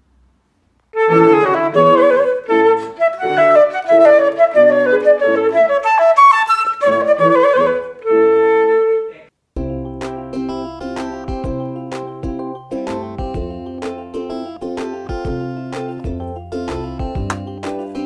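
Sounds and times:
piano accompaniment: 1.0 - 8.3, 9.6 - 18.0
flute melody: 1.0 - 9.3.

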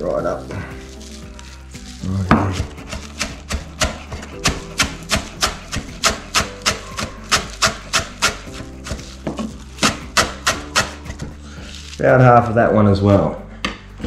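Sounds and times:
knife chopping on plastic board: 2.2 - 11.3.

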